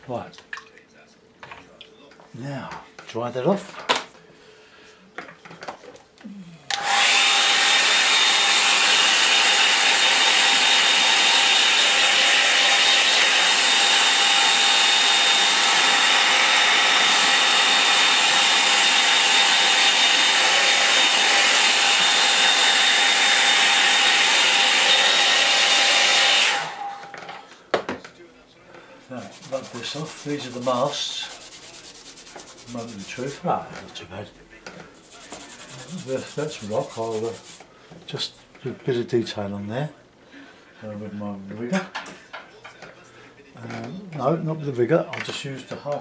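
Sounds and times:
hair dryer running: 6.7s - 27.4s, 29.2s - 33.5s.

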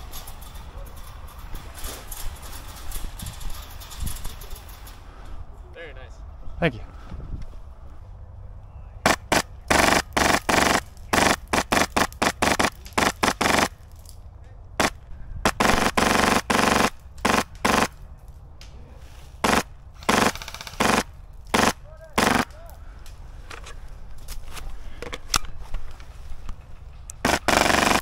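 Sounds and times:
airsoft guns firing: 9.0s - 13.8s, 14.8s - 18.0s, 19.4s - 22.7s, 27.2s - 28.0s.

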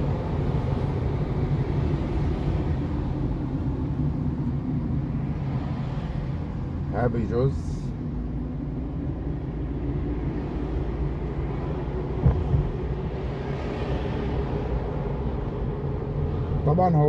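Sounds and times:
engine and tyre rumble: 0.0s - 17.0s
brief knock: 12.2s - 12.7s.

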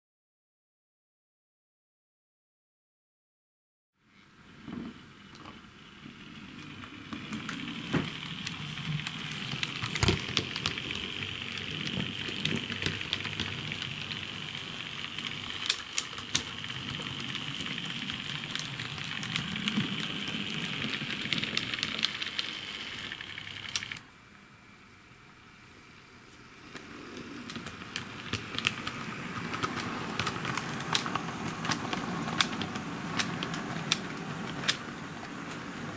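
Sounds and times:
model train motor whirring: 5.2s - 24.1s, 25.9s - 35.9s
wheels clicking over rail joints: 6.4s - 24.0s, 26.8s - 35.9s.

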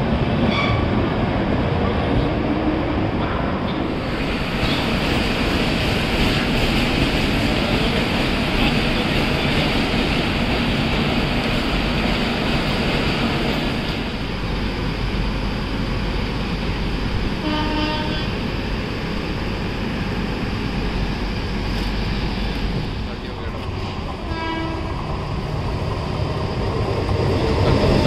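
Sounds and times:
railway station noise: 0.0s - 28.0s
locomotive horn toot: 17.4s - 18.4s, 24.2s - 25.0s.

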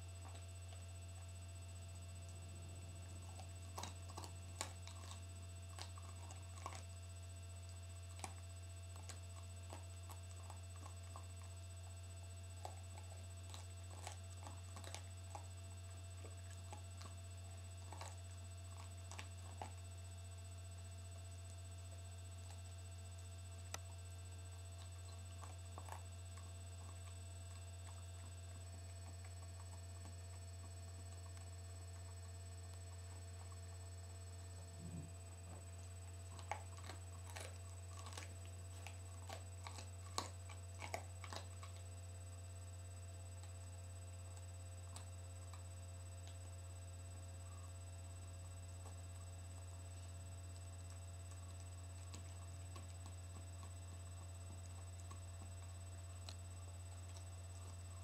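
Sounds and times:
low hum: 0.0s - 40.6s
dog gnawing bone: 0.0s - 58.0s.

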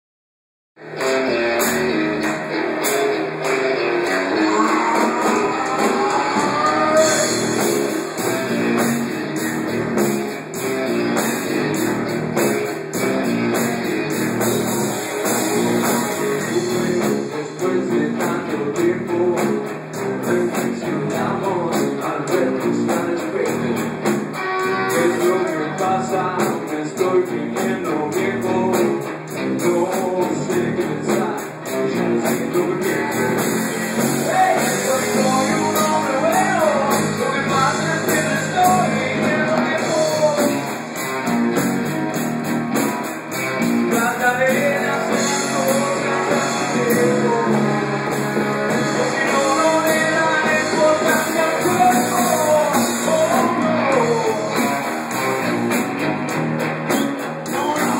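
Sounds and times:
drum kit: 0.8s - 57.9s
electric guitars: 0.8s - 57.9s
man singing into a microphone: 4.4s - 7.6s, 15.5s - 23.9s, 24.6s - 33.5s, 34.2s - 40.7s, 43.9s - 54.8s, 57.5s - 57.9s.

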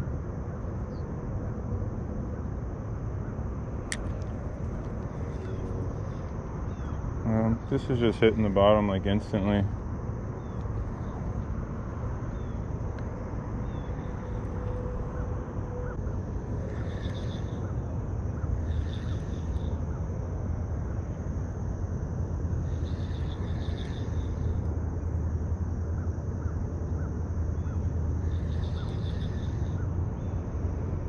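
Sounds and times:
pulsed chirping calls: 13.6s - 20.1s, 22.6s - 24.6s, 26.0s - 30.4s.

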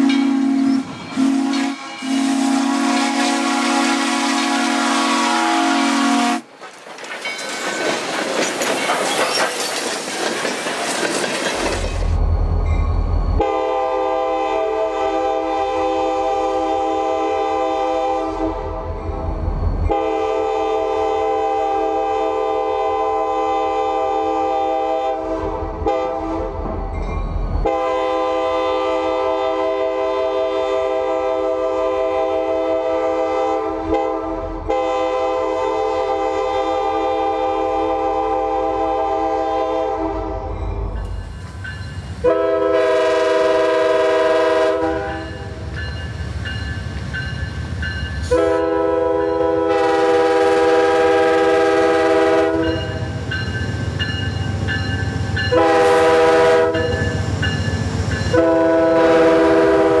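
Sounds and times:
locomotive air horn blasts: 0.0s - 6.4s, 13.4s - 19.0s, 19.9s - 26.6s, 27.6s - 40.6s, 42.2s - 45.6s, 48.3s - 52.9s, 55.5s - 57.1s, 58.3s - 60.0s
train wheel rumble: 0.0s - 60.0s.

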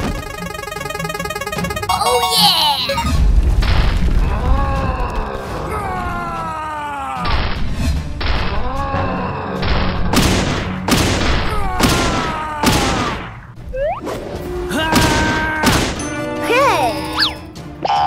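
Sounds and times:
background music: 0.0s - 3.2s, 5.4s - 12.6s, 13.6s - 18.0s
cartoon punch and boom effects: 9.7s - 13.4s.

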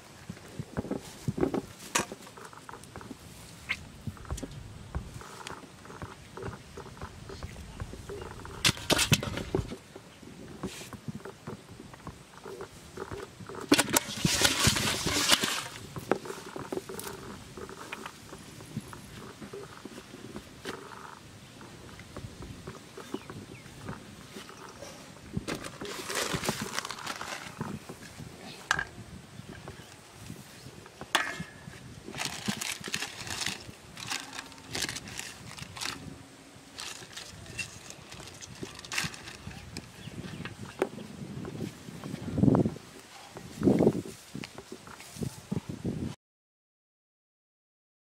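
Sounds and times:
fish flapping in metal basin: 13.6s - 17.0s
water splashing: 13.7s - 16.0s
plastic packets crinkling: 25.5s - 27.8s, 32.1s - 36.1s, 36.7s - 40.0s.

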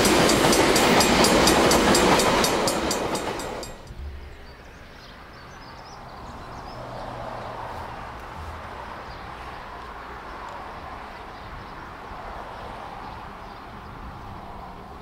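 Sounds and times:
steam train passing at speed: 0.0s - 4.0s.

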